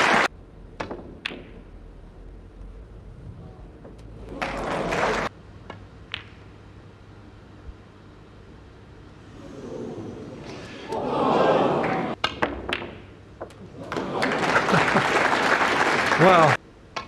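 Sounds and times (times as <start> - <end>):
crowd noise: 0.0 - 0.3, 4.2 - 5.3, 9.4 - 12.2, 13.6 - 16.6
snooker balls clicking: 0.8 - 1.8, 5.6 - 6.5, 11.9 - 14.1.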